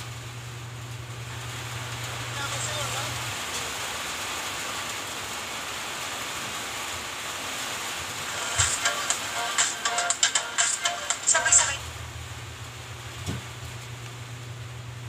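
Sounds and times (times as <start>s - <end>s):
steady hiss: 1.2s - 14.8s
tv sound from small speaker: 1.3s - 4.0s, 8.2s - 14.1s.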